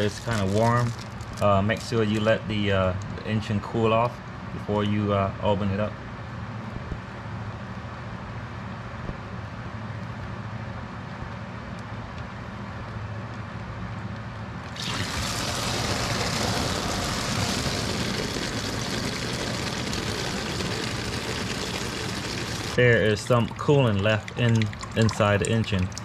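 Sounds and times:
coolant pouring into plastic bag: 0.0 - 2.4, 14.6 - 26.0
low hum: 14.7 - 26.0.

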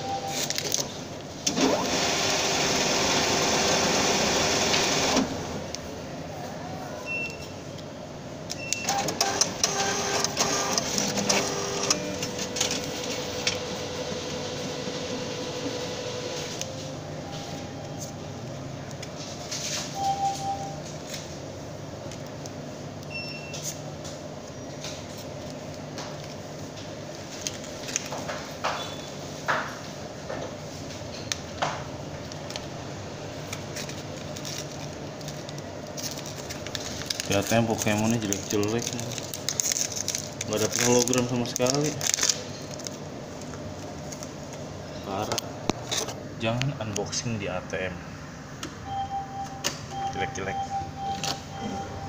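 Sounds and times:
air conditioning hum: 0.0 - 52.0
foil wrapper crinkling and tearing: 33.6 - 43.0
steady hum: 41.3 - 52.0.

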